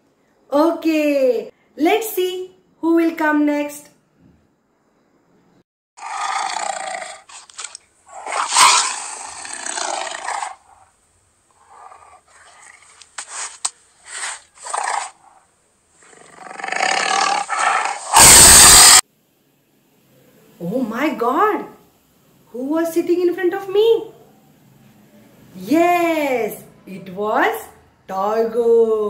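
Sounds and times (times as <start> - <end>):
tiger roaring and growling: 6.0 - 7.5, 8.1 - 10.9, 11.5 - 13.0, 14.1 - 15.4, 16.0 - 19.0.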